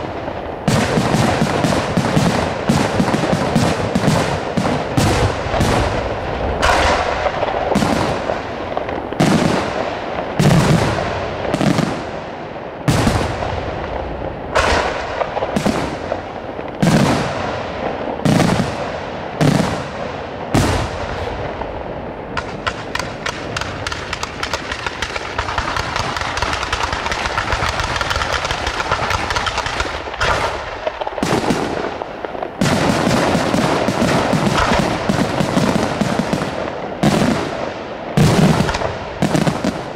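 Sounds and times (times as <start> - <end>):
firework crackling: 0.0 - 39.9
firework shells bursting: 6.6 - 9.3, 22.4 - 36.6.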